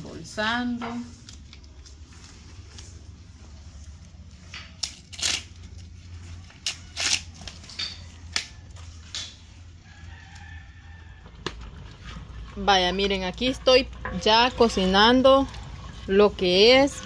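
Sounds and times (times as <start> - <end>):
corn husks tearing: 3.7 - 7.7
distant rooster crowing: 7.7 - 11.8.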